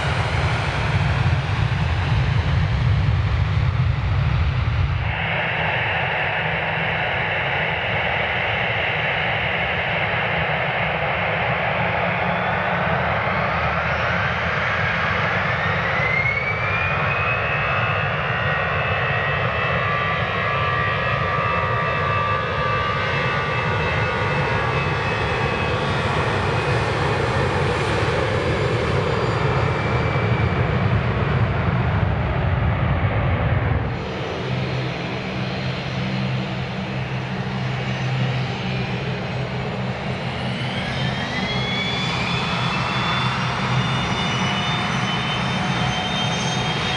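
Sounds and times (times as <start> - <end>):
jet engines spooling up: 0.0 - 46.9.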